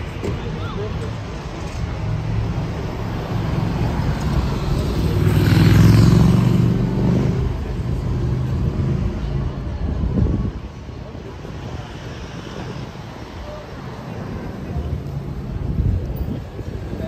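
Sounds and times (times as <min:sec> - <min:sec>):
street traffic: 0:00.0 - 0:17.0
motor vehicle passing close: 0:03.1 - 0:09.1.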